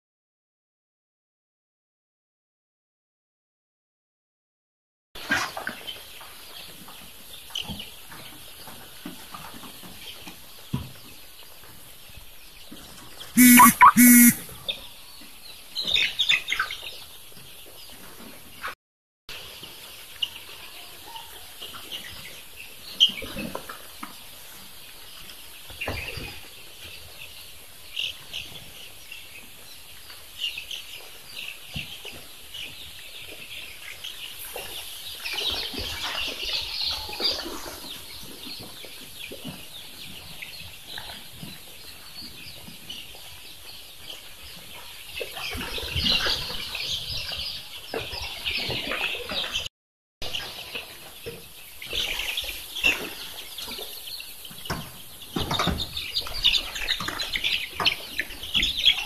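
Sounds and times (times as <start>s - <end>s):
chicks peeping: 13.4s - 14.4s.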